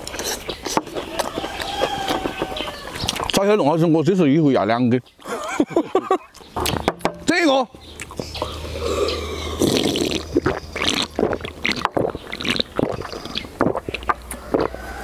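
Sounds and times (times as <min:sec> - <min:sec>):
person gulping and swallowing: 0:08.0 - 0:14.9.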